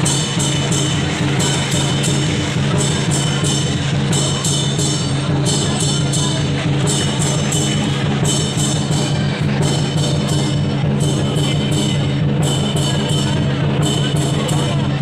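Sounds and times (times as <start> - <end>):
cymbals clashing: 0.0 - 15.0
large drum beating: 0.0 - 15.0.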